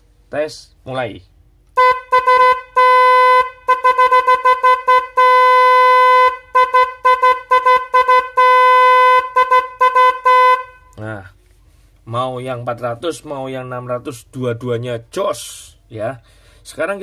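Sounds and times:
electric horn toots and blasts: 0:01.8 - 0:10.9.

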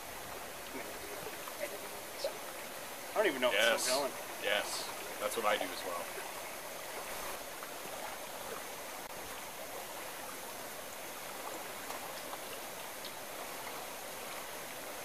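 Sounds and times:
camp stove burning: 0:00.0 - 0:05.4.

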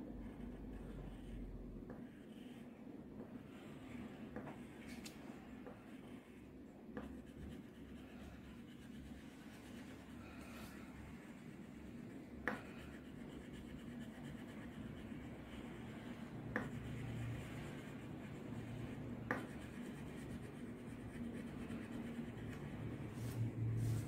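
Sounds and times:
crayon scribbling on paper: 0:07.0 - 0:10.1, 0:10.9 - 0:22.8
crayon tapping on paper: 0:12.4 - 0:12.9, 0:16.5 - 0:16.8, 0:19.2 - 0:19.7.

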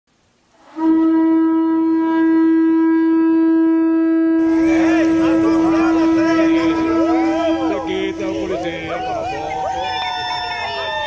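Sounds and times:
horn long steady note: 0:00.5 - 0:11.0
people's voices: 0:04.4 - 0:11.0.

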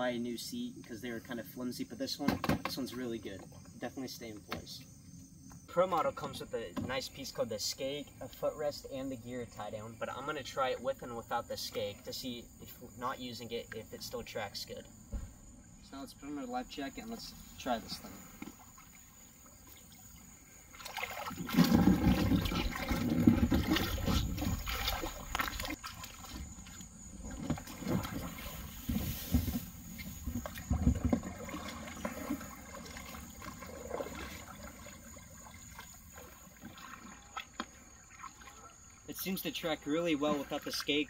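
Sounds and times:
water sloshing around a kayak: 0:05.4 - 0:41.0
paddle strokes: 0:16.2 - 0:41.0
water dripping: 0:18.4 - 0:26.8.

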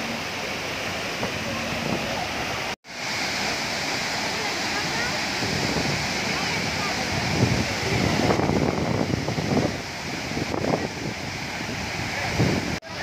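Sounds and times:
waterfall crashing into pool: 0:00.0 - 0:13.0
wind buffeting microphone: 0:04.7 - 0:13.0.

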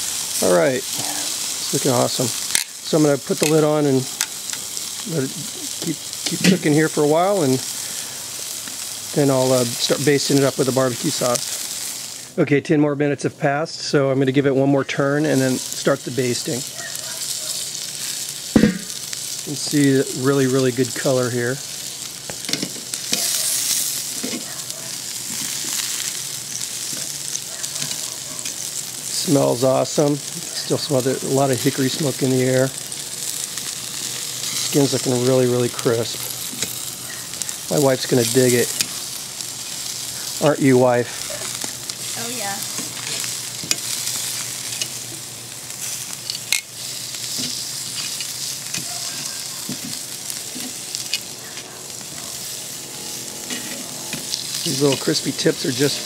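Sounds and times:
meat sizzling on a grill: 0:00.0 - 0:56.0
metal tongs clacking on grate: 0:02.5 - 0:02.7, 0:22.4 - 0:23.5, 0:26.5 - 0:28.7.

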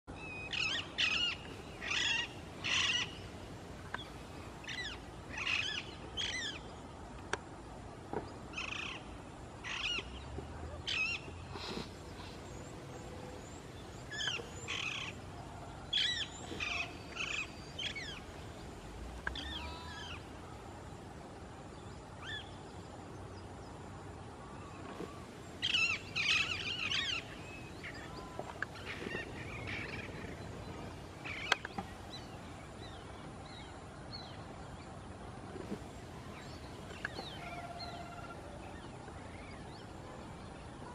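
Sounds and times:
parakeets calling: 0:00.4 - 0:03.3, 0:08.5 - 0:10.2, 0:10.8 - 0:12.6, 0:13.8 - 0:15.2, 0:15.9 - 0:18.3, 0:19.2 - 0:20.2, 0:25.6 - 0:32.3.

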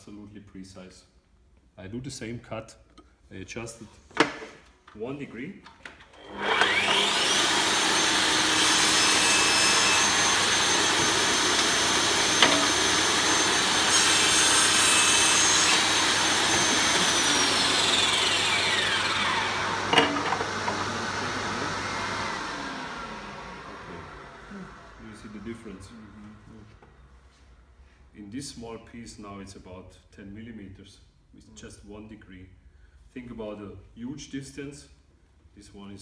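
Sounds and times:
saw blade cutting wood: 0:06.2 - 0:24.2
table saw whining: 0:06.2 - 0:26.0
sharp knocks: 0:19.9 - 0:20.9.

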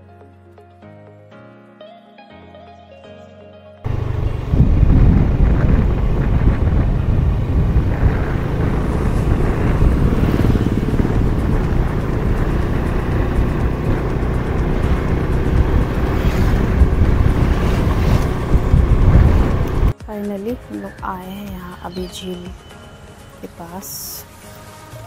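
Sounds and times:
motorcycle engine running: 0:03.9 - 0:20.0
wind rumble on microphone: 0:03.9 - 0:20.0.

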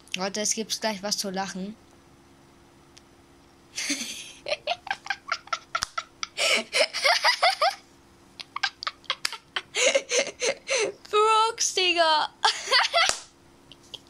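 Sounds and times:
person giggling and laughing: 0:03.8 - 0:07.8, 0:08.4 - 0:10.9, 0:12.4 - 0:14.0.

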